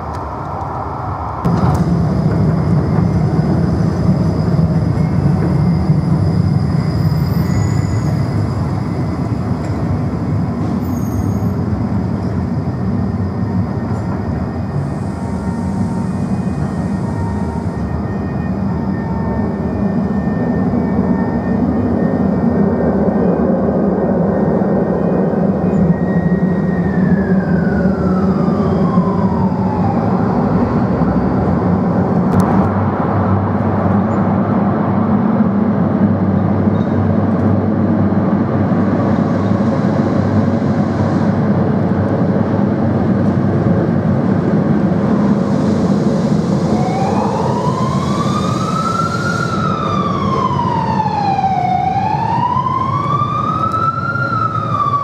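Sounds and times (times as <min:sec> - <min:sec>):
tram rumbling on rails: 0:00.0 - 0:55.0
wailing emergency siren: 0:11.5 - 0:32.4, 0:45.8 - 0:55.0.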